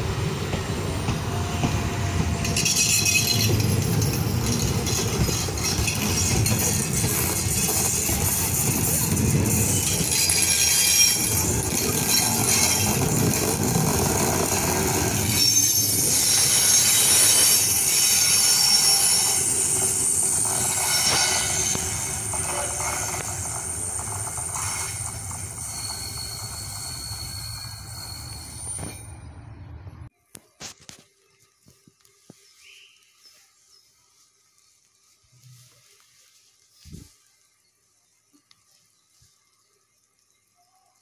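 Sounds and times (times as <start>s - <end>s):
wheels squealing on rails: 0.0s - 30.0s
train wheels rumbling: 0.0s - 30.1s.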